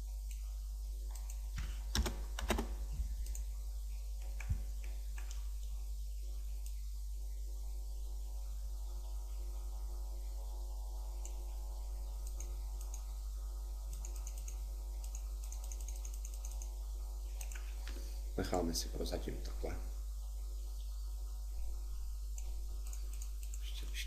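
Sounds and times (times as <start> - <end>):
low electrical hum: 0.0 - 24.0
keyboard and mouse clicks: 1.1 - 3.5, 4.2 - 5.5, 12.2 - 13.1, 13.9 - 18.0, 22.4 - 23.9.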